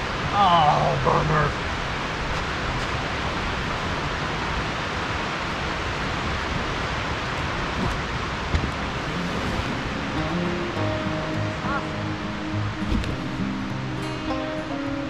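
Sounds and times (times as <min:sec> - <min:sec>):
creek flowing: 0:08.2 - 0:15.0.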